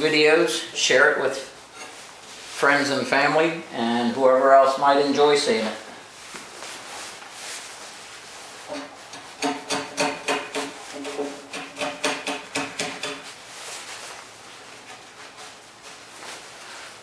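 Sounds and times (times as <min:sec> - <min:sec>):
hammer tapping on chisel: 0:09.4 - 0:13.2.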